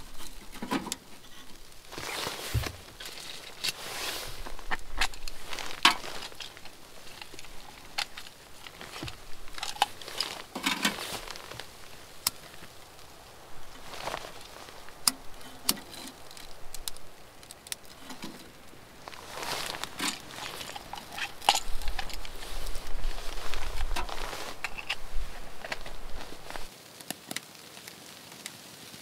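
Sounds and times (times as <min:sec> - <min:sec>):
jacket and gloves rustling: 0:00.0 - 0:26.7
sharp clicks and light knocks: 0:00.0 - 0:27.4.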